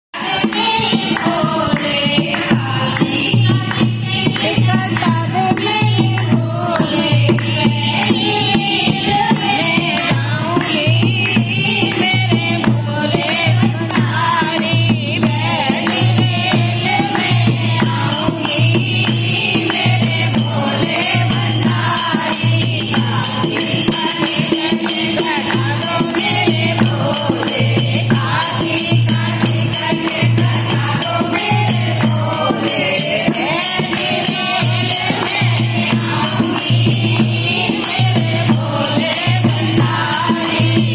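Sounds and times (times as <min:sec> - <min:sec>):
women singing devotional song: 0:00.2 - 0:40.9
hand clapping: 0:17.1 - 0:40.6.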